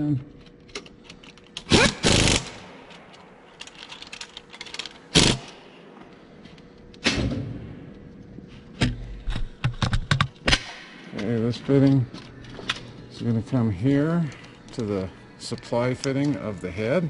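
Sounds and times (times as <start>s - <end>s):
impact wrench hammering: 1.6s - 3.0s.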